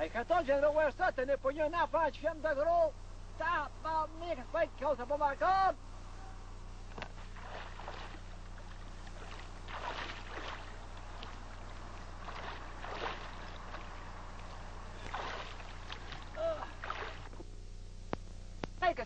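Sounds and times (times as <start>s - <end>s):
steady low hum: 0.0s - 19.0s
water splashing and sloshing: 6.9s - 17.4s.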